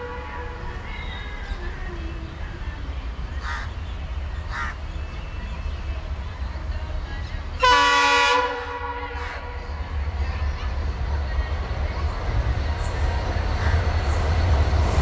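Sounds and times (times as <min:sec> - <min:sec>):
freight train rumbling past: 0:00.0 - 0:15.0
locomotive horn blast: 0:07.6 - 0:09.2.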